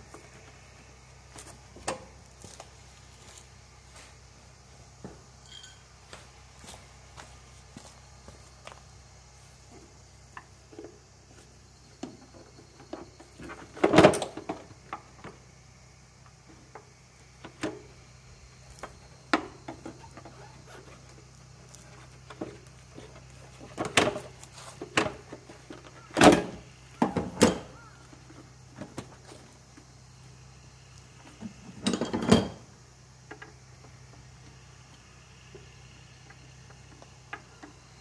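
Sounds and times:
socket wrench metal clinks: 5.4 - 5.8.

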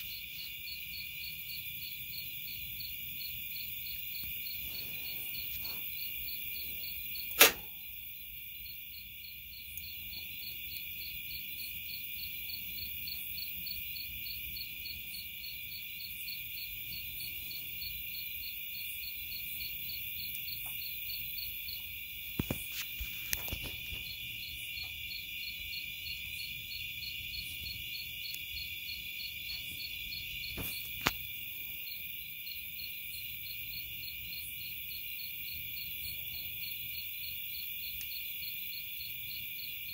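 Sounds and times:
night insects trilling: 0.0 - 39.9
sharp clicks: 7.3 - 7.8.

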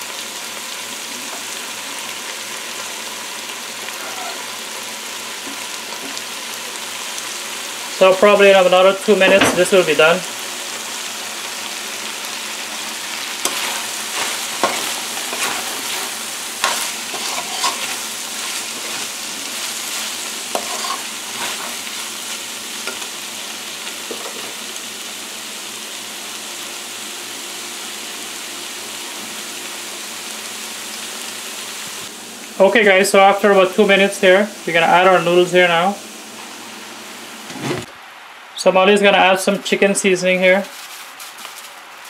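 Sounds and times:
food sizzling in a frying pan: 0.0 - 42.0
metal spoon scraping a pan: 13.4 - 22.0.

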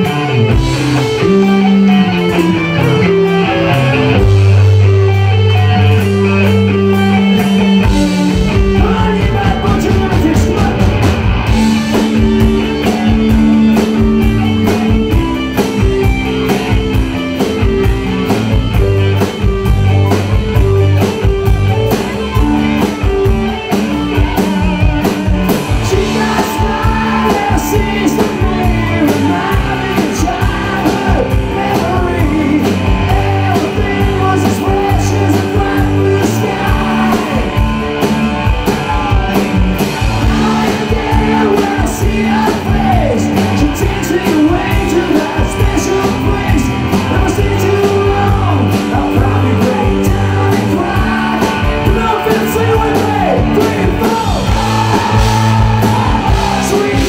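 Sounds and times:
drum kit beat: 0.0 - 57.0
electric guitars: 0.0 - 57.0
person singing lead vocal: 7.6 - 15.0, 25.8 - 37.9, 38.5 - 39.6, 40.2 - 57.0.

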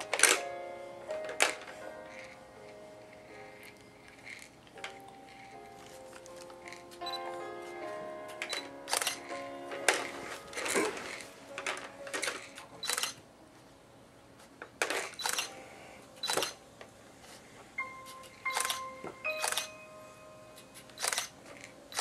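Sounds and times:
plastic toys clicking and clattering: 1.3 - 1.7, 8.3 - 13.2, 14.7 - 15.5.

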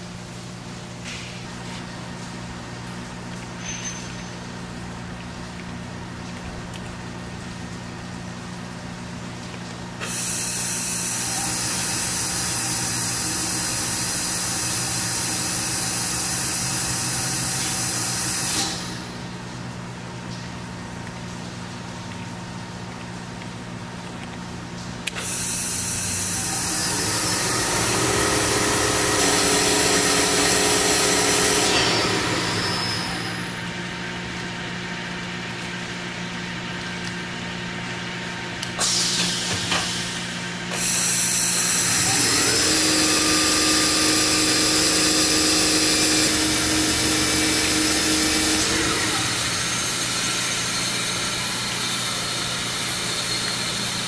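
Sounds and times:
machine hum: 0.0 - 54.0
machine spindle whine: 25.2 - 35.1, 38.8 - 54.0.

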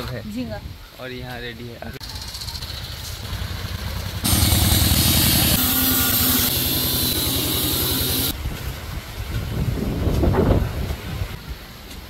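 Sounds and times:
engine running: 2.0 - 8.4.

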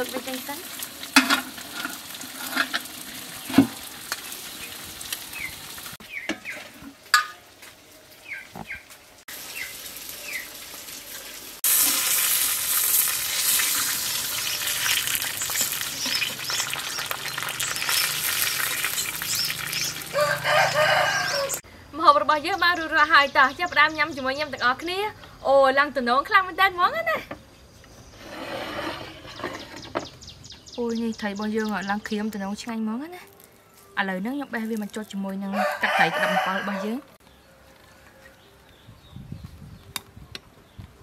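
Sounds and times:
fish sizzling in hot oil: 0.0 - 6.2, 9.2 - 21.6
spoon clinking on metal pot: 7.2 - 7.4
bird chirps: 14.5 - 20.1.

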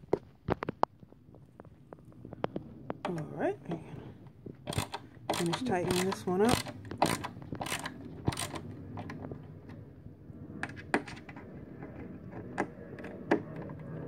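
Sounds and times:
ratcheting screwdriver clicks: 4.7 - 8.6.

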